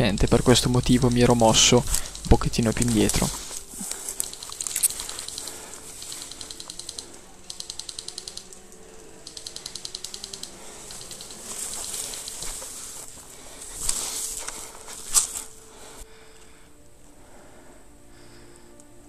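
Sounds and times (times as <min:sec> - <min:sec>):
airsoft guns firing bursts: 0:03.0 - 0:08.6.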